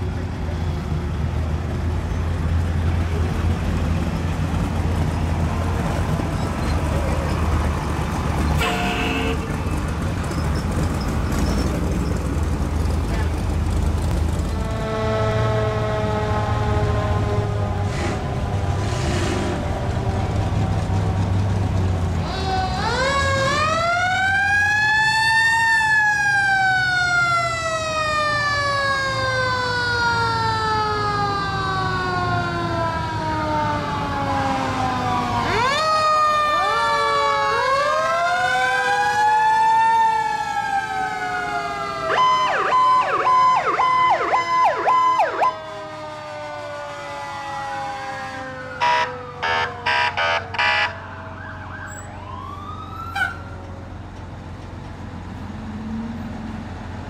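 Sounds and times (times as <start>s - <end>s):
horn blasts: 8.6s - 9.7s, 14.5s - 18.2s
mechanical siren wailing: 22.2s - 53.8s
steady siren tone: 22.5s - 53.7s
fast yelping siren: 35.2s - 38.9s, 40.8s - 45.7s, 48.7s - 53.6s.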